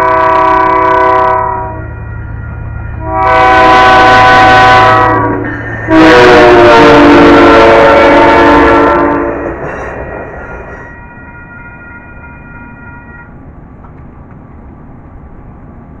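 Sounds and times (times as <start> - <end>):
train horn: 0.0 - 2.2, 2.8 - 9.6
train rushing past: 0.0 - 16.0
crossing bell ringing: 1.4 - 3.5, 4.5 - 7.5, 8.6 - 13.3.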